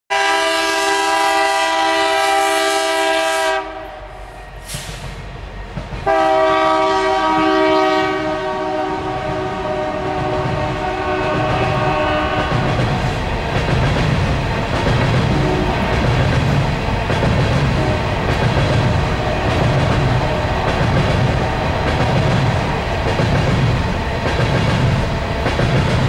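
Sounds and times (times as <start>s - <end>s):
locomotive air horn blasts: 0.1s - 5.0s, 6.0s - 12.7s, 17.6s - 18.2s
train cars rolling past: 3.6s - 26.0s.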